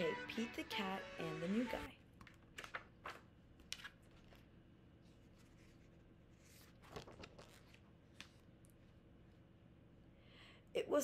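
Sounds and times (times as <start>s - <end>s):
book pages rustling and turning: 2.2s - 9.0s.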